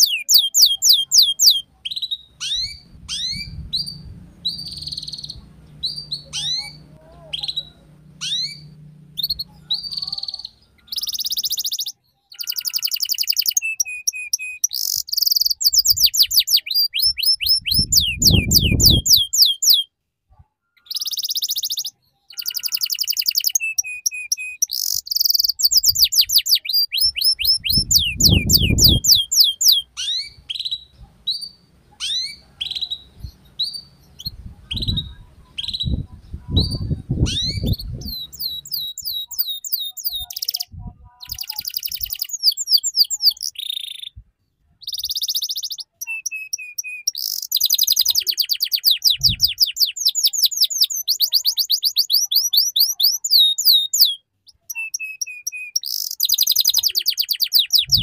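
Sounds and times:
canary singing: 0:00.0 - 0:19.9, 0:20.8 - 0:44.2, 0:44.8 - 0:58.0
low rumble: 0:02.6 - 0:09.9.

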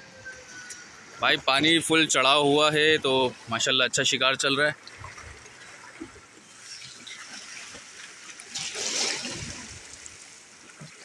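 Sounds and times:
sea water washing against rocks: 0:04.9 - 0:11.0.

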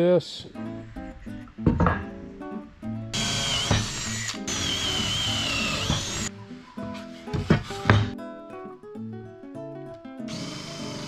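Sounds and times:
acoustic guitar music: 0:00.4 - 0:11.0
cordless drill boring into wood: 0:03.1 - 0:06.3, 0:10.3 - 0:11.0.

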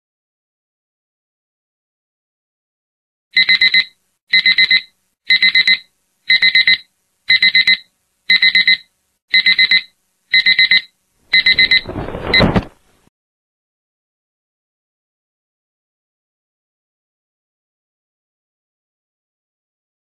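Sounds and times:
alarm clock beeping: 0:03.4 - 0:12.5.

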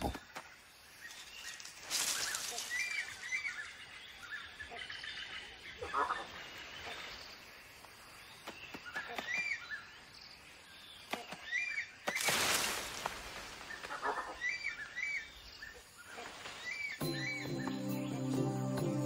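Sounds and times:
foliage rustling: 0:00.0 - 0:04.3, 0:11.1 - 0:17.0
bird chirping: 0:00.0 - 0:12.3, 0:13.7 - 0:19.0
faint bird calls: 0:00.0 - 0:12.7, 0:13.5 - 0:17.8.

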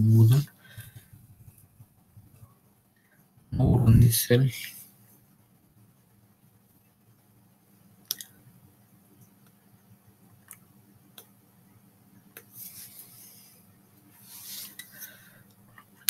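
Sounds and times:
soft rustle: 0:12.4 - 0:15.4.

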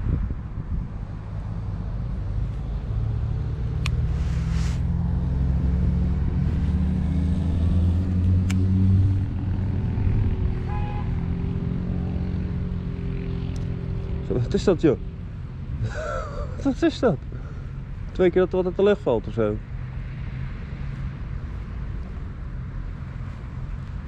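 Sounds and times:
engine running: 0:01.7 - 0:16.6.

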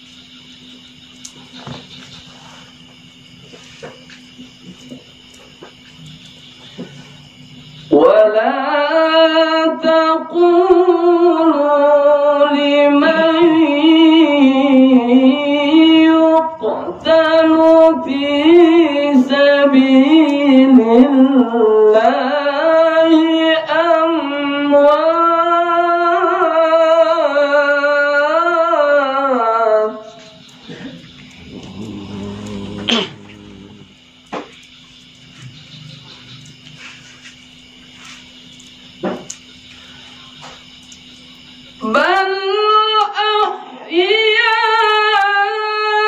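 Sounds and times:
man reciting melodically: 0:12.8 - 0:21.4
breaths: 0:39.7 - 0:40.4.

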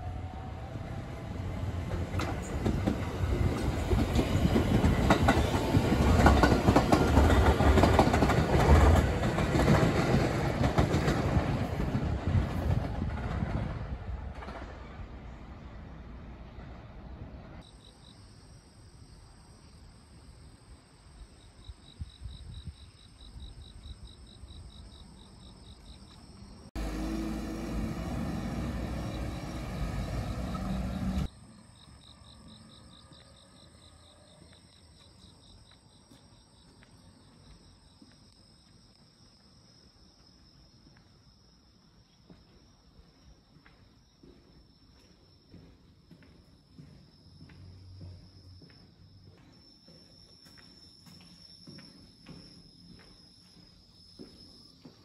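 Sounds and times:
faint footsteps: 0:34.4 - 0:55.0.

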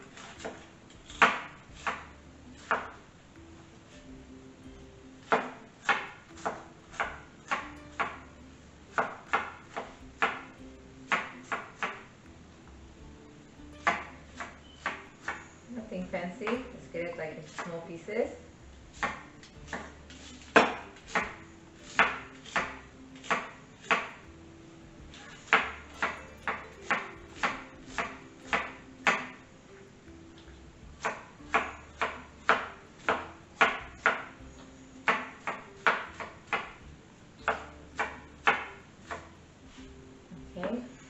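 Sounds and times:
knife chopping on wooden board: 0:00.2 - 0:03.0, 0:05.2 - 0:08.2, 0:08.9 - 0:10.5, 0:11.1 - 0:12.1, 0:13.8 - 0:15.4, 0:18.9 - 0:24.2, 0:25.1 - 0:29.4, 0:31.0 - 0:34.4, 0:35.0 - 0:36.8, 0:37.4 - 0:39.3.

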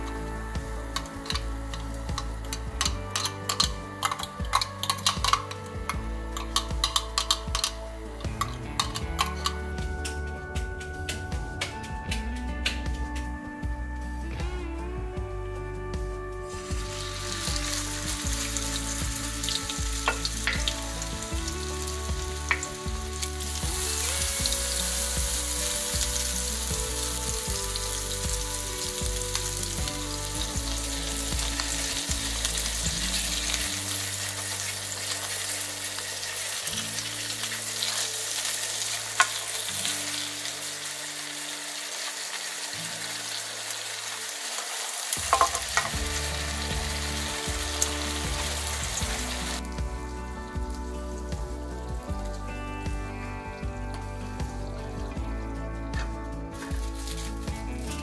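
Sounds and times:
patties sizzling in oil: 0:00.0 - 0:11.8, 0:16.5 - 0:53.3, 0:53.9 - 0:58.0.

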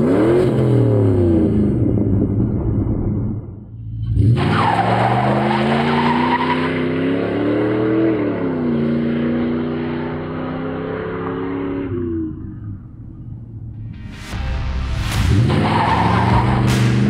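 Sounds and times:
car engine accelerating hard: 0:00.0 - 0:03.3, 0:04.0 - 0:12.8.

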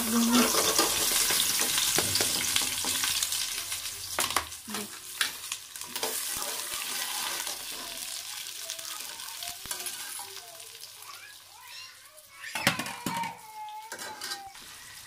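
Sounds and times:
onions sizzling in hot oil: 0:00.0 - 0:15.0
metal ladle scraping a pot: 0:00.3 - 0:01.3.

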